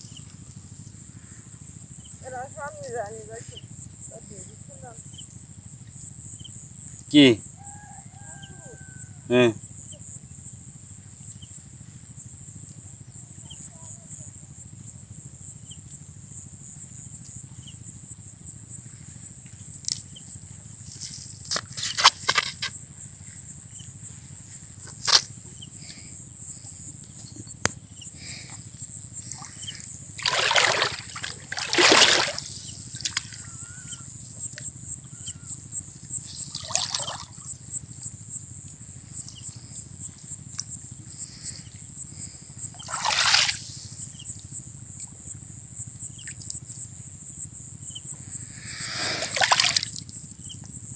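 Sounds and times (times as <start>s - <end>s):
crickets chirping: 0.0s - 50.9s
water splashing and trickling: 29.3s - 33.4s, 36.5s - 37.4s, 42.8s - 43.6s, 49.3s - 50.0s
net hauled out of water: 30.2s - 33.4s, 36.5s - 37.2s, 42.8s - 43.6s, 49.2s - 49.9s.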